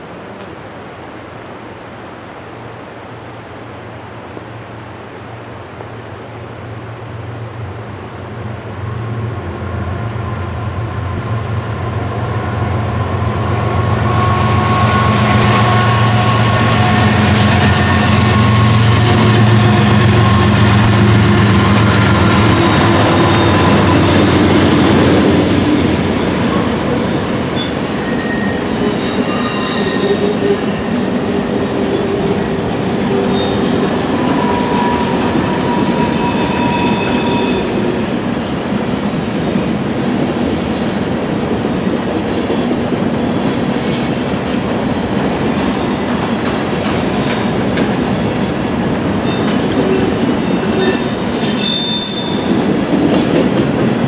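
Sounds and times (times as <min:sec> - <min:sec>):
diesel train engine drone: 0:00.0 - 0:51.4
high-pitched wheel squeal: 0:14.0 - 0:20.7, 0:21.6 - 0:24.0, 0:27.6 - 0:31.6, 0:33.1 - 0:37.8, 0:45.6 - 0:52.6.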